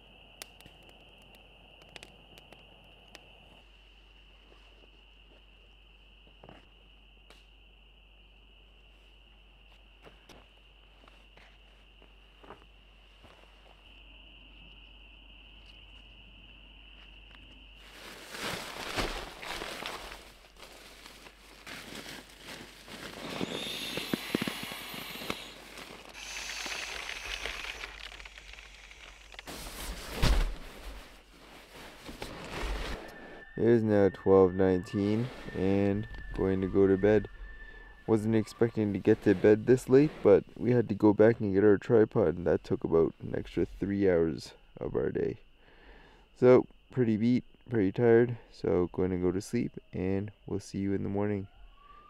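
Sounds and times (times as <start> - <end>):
campfire crackling and popping: 0.3 - 3.3, 23.2 - 29.5
fire hissing: 22.9 - 33.5
night creatures calling: 23.0 - 29.4, 51.4 - 52.0.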